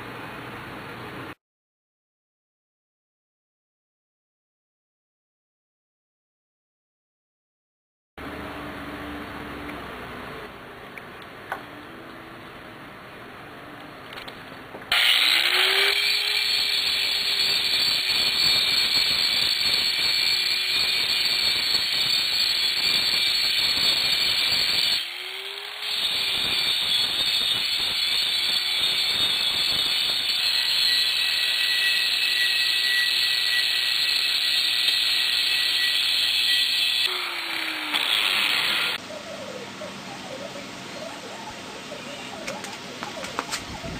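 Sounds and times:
angle grinder grinding metal: 14.9 - 39.0.

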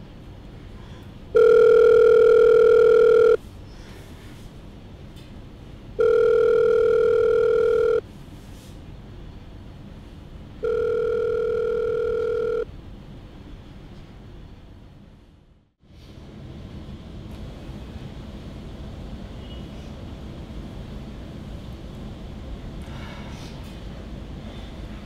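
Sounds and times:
telephone ringback tone: 1.4 - 3.4, 6.0 - 8.0, 10.6 - 12.7.

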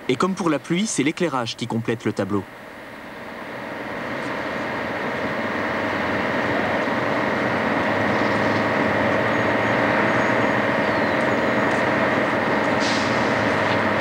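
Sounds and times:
snow cannon blowing air: 12.5 - 13.9.

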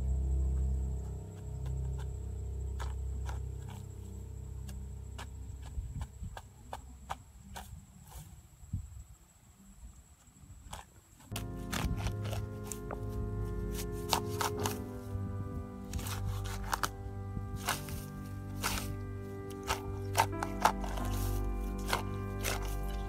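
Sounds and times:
metal blade scraping dry soil: 10.7 - 15.2, 15.8 - 23.0
background music: 11.3 - 23.0.

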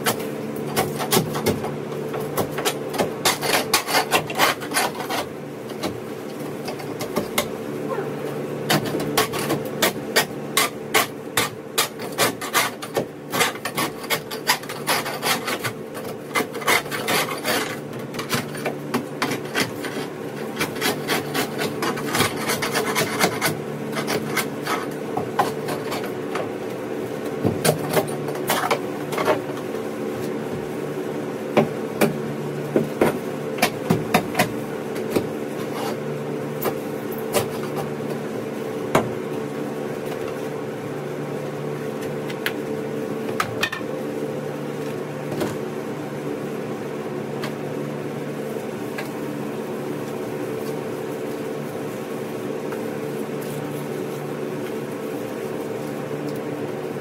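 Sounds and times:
steady low hum: 0.0 - 57.0
scraper scraping boat hull: 2.5 - 5.4, 8.8 - 26.2, 35.6 - 36.0.

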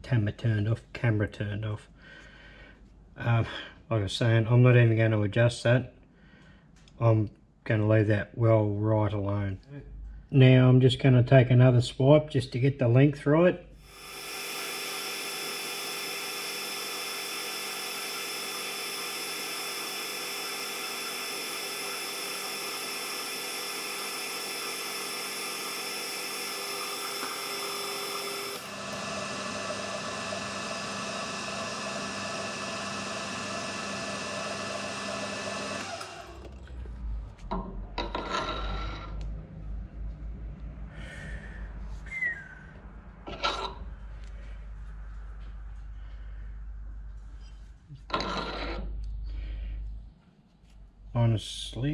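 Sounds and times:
lathe motor whine: 13.8 - 37.0, 48.1 - 48.8.

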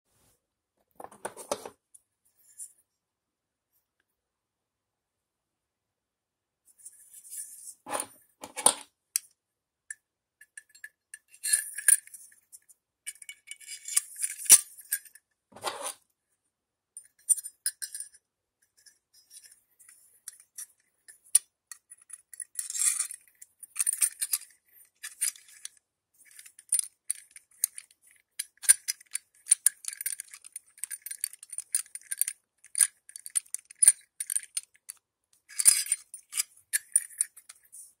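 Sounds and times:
small metal pieces clinking: 22.0 - 34.9, 35.5 - 37.6.

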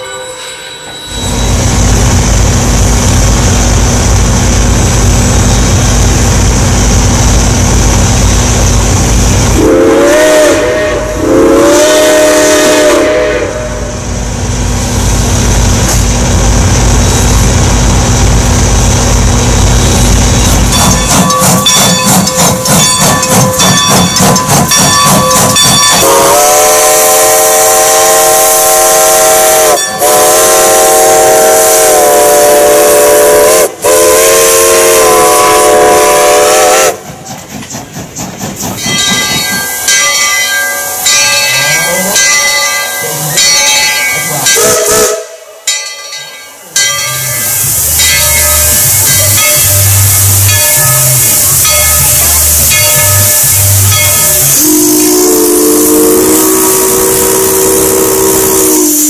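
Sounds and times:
steam whistle blasts: 0.0 - 1.6, 9.5 - 14.0, 25.4 - 37.0, 40.7 - 42.2, 44.2 - 45.6, 47.4 - 59.0
steam locomotive exhaust chuffs: 0.0 - 59.0.

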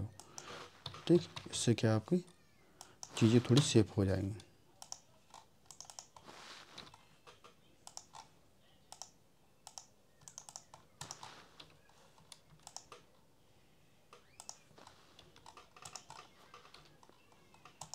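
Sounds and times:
keyboard and mouse clicking: 4.8 - 6.2, 6.9 - 8.3, 8.9 - 13.2, 14.1 - 17.9.

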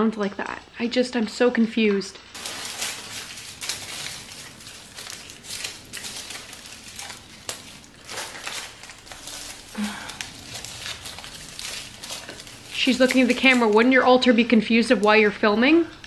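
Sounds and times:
wrapper crinkling and rustling: 2.2 - 15.4.

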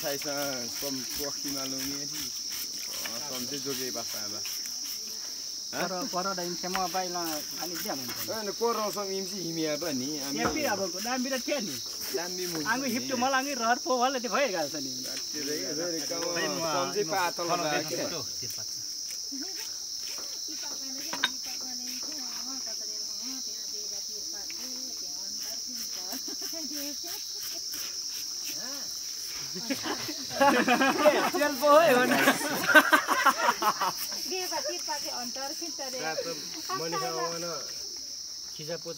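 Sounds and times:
insect chorus buzzing: 0.0 - 38.9
people talking: 29.6 - 32.9.

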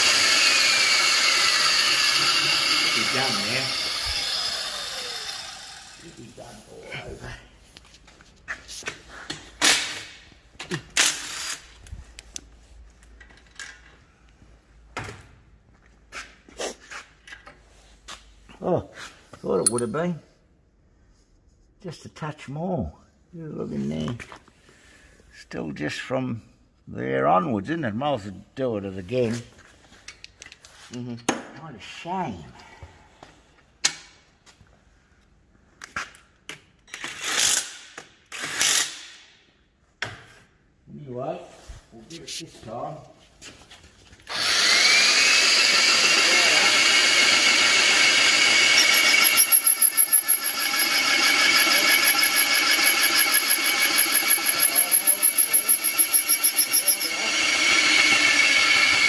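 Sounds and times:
cordless drill on steel: 0.0 - 6.4, 11.0 - 11.7, 44.2 - 59.0
metal tools clanking on housing: 19.6 - 20.0.

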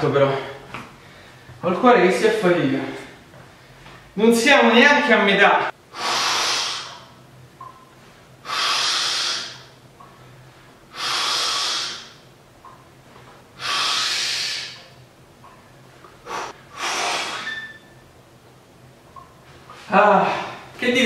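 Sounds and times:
man breathing hard: 5.9 - 7.1, 8.4 - 9.7, 10.4 - 12.2, 13.6 - 14.8, 16.2 - 17.5.

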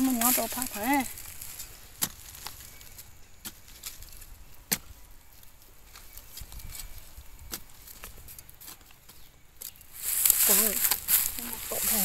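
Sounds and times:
metal bar striking and scraping soil: 0.0 - 5.1.

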